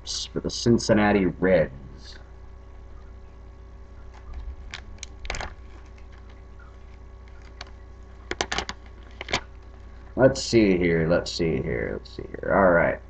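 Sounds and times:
faint steady hum: 0.0s - 13.0s
card wrapper crackling: 4.0s - 10.2s.

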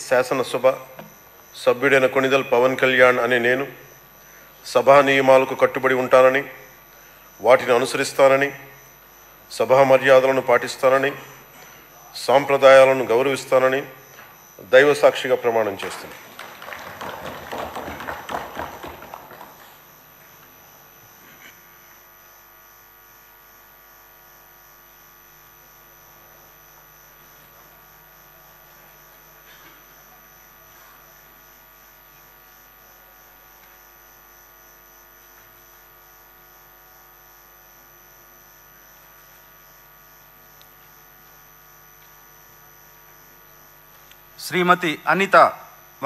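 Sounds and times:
steady electrical hum: 0.0s - 46.0s
people clapping: 15.6s - 19.9s.

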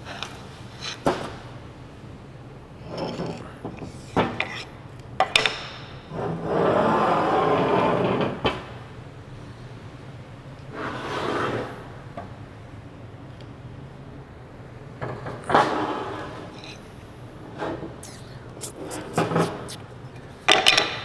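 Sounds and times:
rubbing rushing noise: 18.0s - 19.8s.

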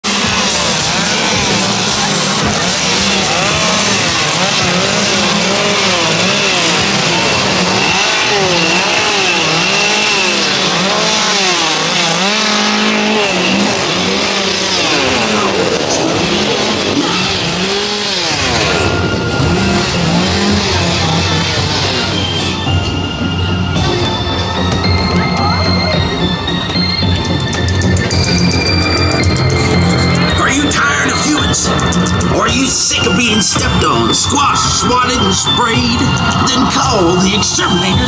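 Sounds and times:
small petrol engines revving: 0.0s - 38.0s
steady engine idling drone: 0.0s - 38.0s.

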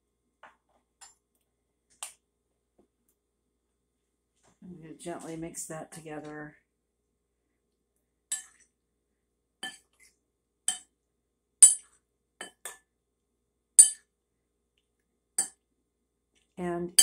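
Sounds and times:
metal spoon clinking ceramic bowl: 8.3s - 8.6s, 9.6s - 9.9s, 11.6s - 12.8s, 13.8s - 14.0s.

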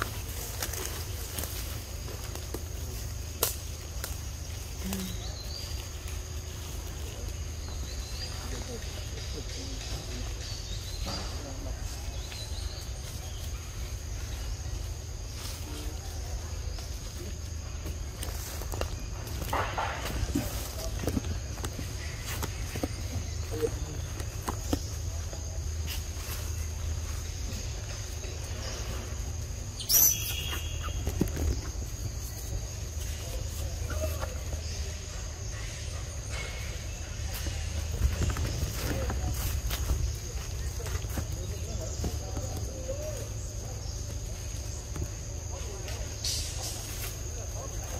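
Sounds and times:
high insect drone: 0.0s - 47.9s
high-pitched insect drone: 25.2s - 41.8s
shrill animal call: 29.8s - 31.0s.

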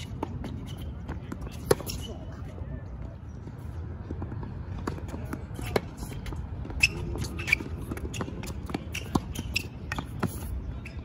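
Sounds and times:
sneakers squeaking on court: 0.0s - 2.5s, 3.3s - 11.0s
tennis ball bouncing: 4.2s - 10.5s.

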